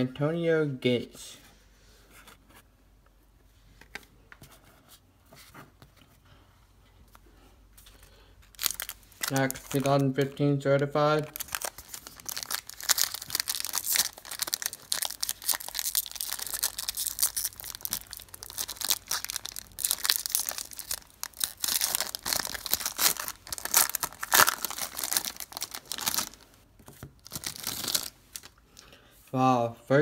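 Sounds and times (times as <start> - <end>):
card pack wrapper tearing and crinkling: 8.5 - 10.2, 11.2 - 26.5, 27.2 - 28.6.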